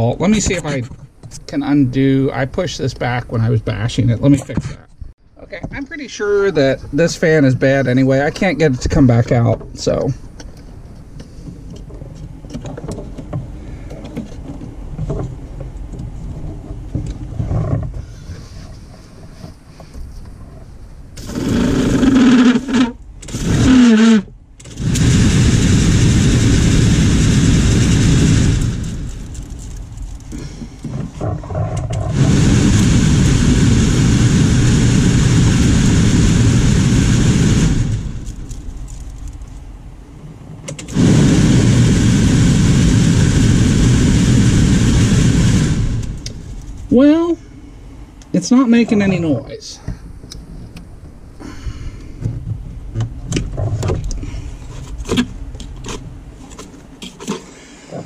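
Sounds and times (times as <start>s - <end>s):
heater blower fan whirring: 21.1s - 30.9s, 31.9s - 40.1s, 40.7s - 49.2s.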